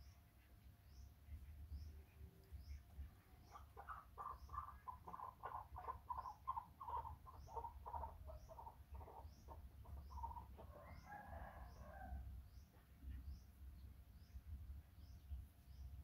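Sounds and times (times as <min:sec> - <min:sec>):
rooster crowing: 0:10.7 - 0:12.2.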